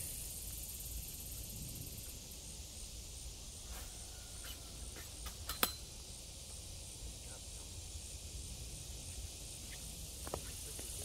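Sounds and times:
insects droning: 0.0 - 11.0
low wind rumble: 0.1 - 3.6.

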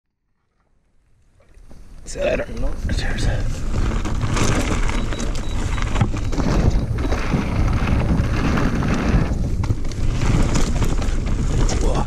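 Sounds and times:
wind rumbling on microphone: 1.3 - 12.0
tyres crunching over stones: 2.6 - 12.0
bike knocking and rattling: 3.5 - 12.0.

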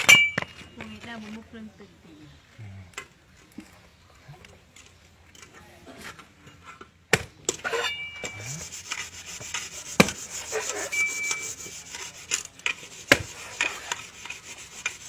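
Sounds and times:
coconut husk scraping: 7.6 - 15.0.

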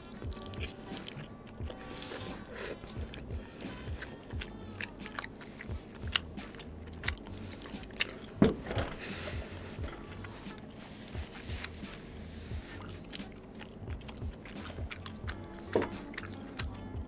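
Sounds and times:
wet chewing mouth sounds: 0.0 - 17.0.

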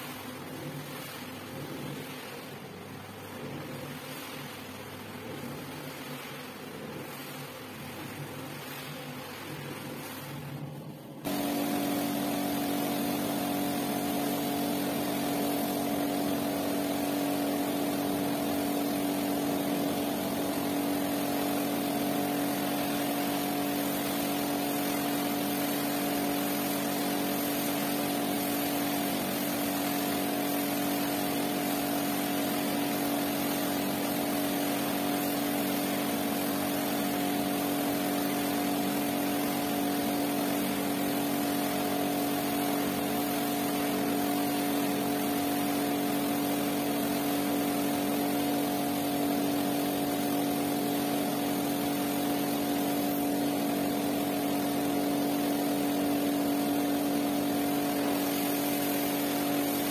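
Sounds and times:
water jet hissing: 0.0 - 10.6, 11.2 - 59.9
pressure washer motor hum: 0.0 - 59.9.

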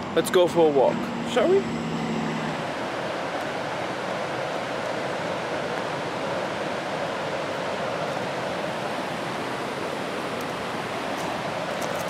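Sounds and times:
rushing creek and falls: 2.5 - 12.0.

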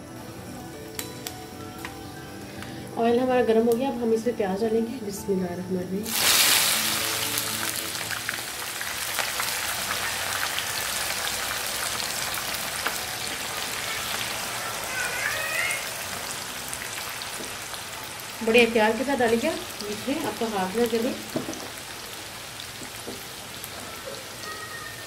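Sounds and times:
onions sizzling in hot oil: 6.0 - 25.0.

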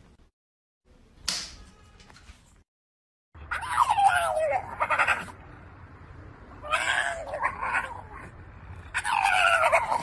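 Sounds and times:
dog howling: 3.5 - 5.3, 8.9 - 10.0.

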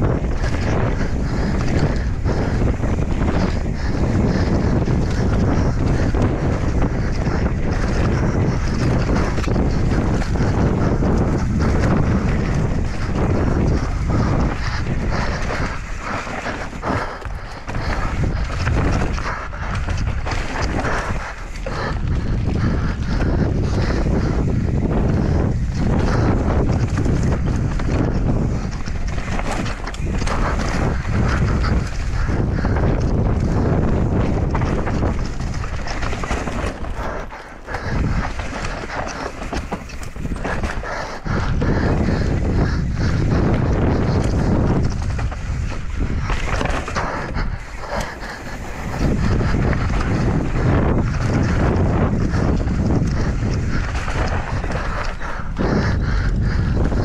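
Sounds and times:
bike rattling over bumps: 0.0 - 57.0
wind buffeting microphone: 0.0 - 57.0
tyres crunching over dirt: 25.1 - 55.1.

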